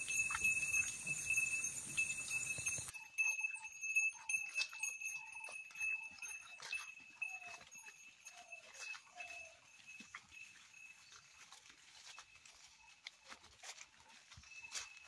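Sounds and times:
high-pitched ringing: 0:00.0 - 0:11.2
animal footsteps on grass: 0:00.0 - 0:15.0.

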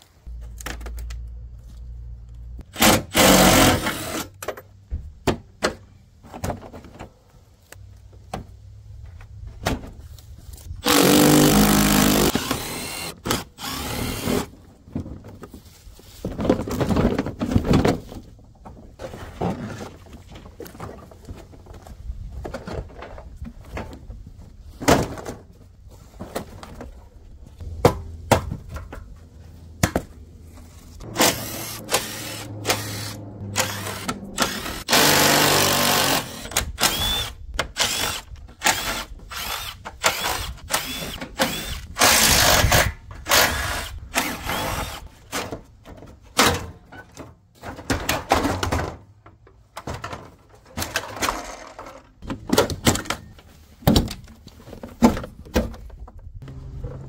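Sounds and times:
power drill running: 0:10.8 - 0:14.4, 0:31.0 - 0:42.7, 0:43.3 - 0:45.1
plastic parts knocking and clattering: 0:16.2 - 0:27.0, 0:45.3 - 0:56.4.

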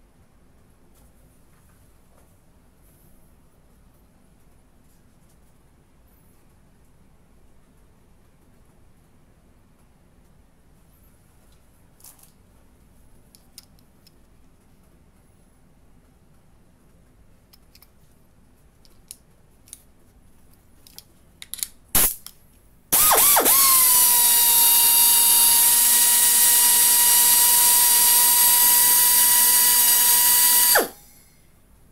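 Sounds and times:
small tool clicks: 0:17.5 - 0:18.0, 0:20.8 - 0:22.4, 0:23.0 - 0:31.0
sharp air burst: 0:22.0 - 0:22.2, 0:22.9 - 0:31.3
die grinder high-pitched whine: 0:23.0 - 0:31.1.

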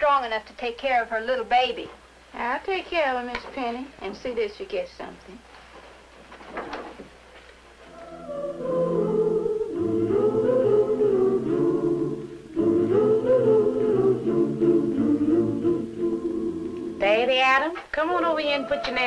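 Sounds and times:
choir singing a cappella: 0:07.9 - 0:17.3, 0:18.1 - 0:19.0.

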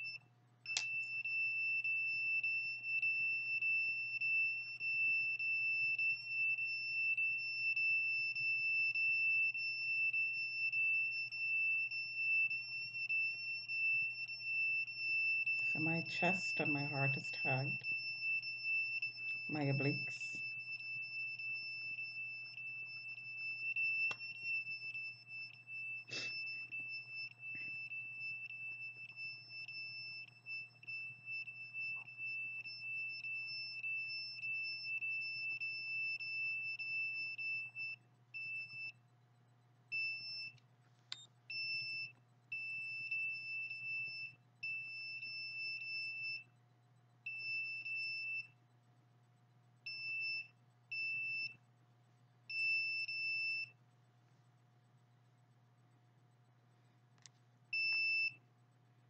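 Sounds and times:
meter alarm tone and beeps: 0:00.0 - 0:40.6, 0:41.2 - 0:48.8, 0:49.8 - 0:51.6, 0:52.5 - 0:53.8, 0:57.7 - 0:58.4.

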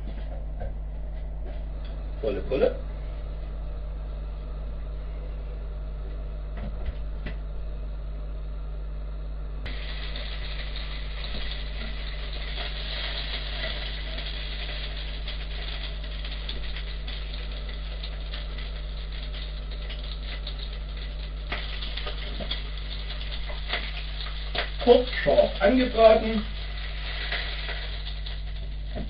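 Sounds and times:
meat sizzling in frying pan: 0:09.7 - 0:29.0.

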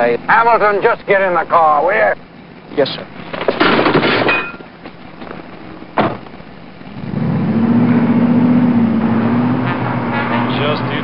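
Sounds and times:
car engine humming: 0:00.0 - 0:11.0
rustling and knocking: 0:03.2 - 0:06.5
car door slamming: 0:06.0 - 0:06.4.

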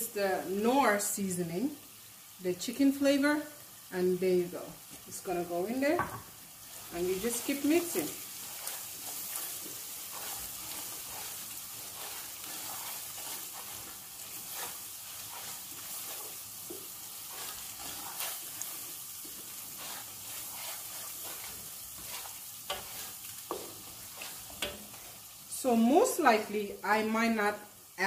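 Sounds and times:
sauce sizzling: 0:00.0 - 0:28.0
wooden spatula scraping pot: 0:06.6 - 0:25.2.

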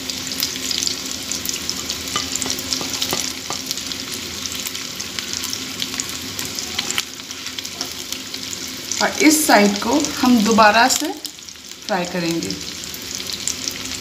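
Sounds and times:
fish sizzling in oil: 0:00.0 - 0:14.0
spatula tapping pan: 0:02.1 - 0:03.8.

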